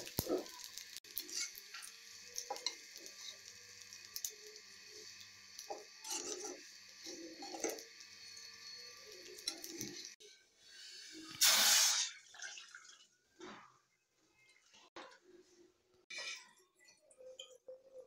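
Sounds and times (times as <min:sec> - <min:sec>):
spoon scraping metal pan: 0:01.2 - 0:01.9, 0:06.0 - 0:07.8
water pouring and splashing: 0:11.4 - 0:13.5.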